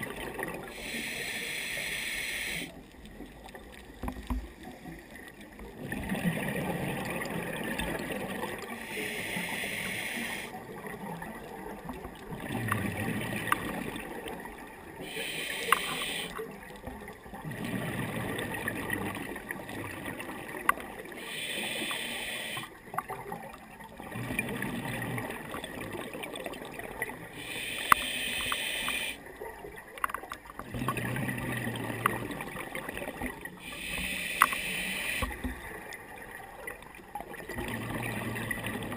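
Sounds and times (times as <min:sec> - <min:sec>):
diver breathing through regulator: 0:00.7 - 0:02.8, 0:08.8 - 0:10.6, 0:15.0 - 0:16.4, 0:21.2 - 0:22.7, 0:27.4 - 0:29.2, 0:33.6 - 0:35.5.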